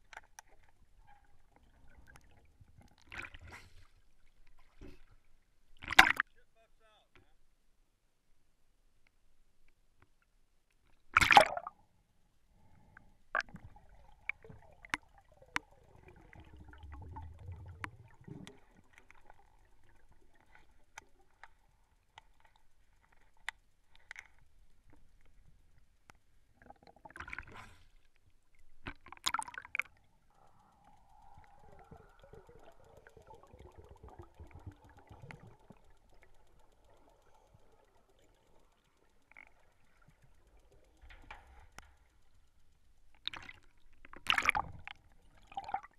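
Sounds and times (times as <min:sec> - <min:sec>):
underwater clicks and knocks: 0:13.4 - 0:27.5, 0:28.5 - 0:45.9
low bubbling rumbles: 0:13.5 - 0:20.4, 0:29.3 - 0:42.6.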